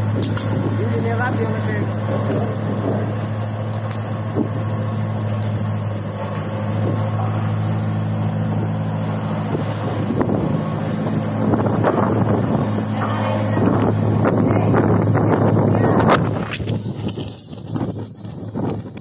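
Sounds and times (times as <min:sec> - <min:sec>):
boom lift engine humming: 0:00.0 - 0:19.0.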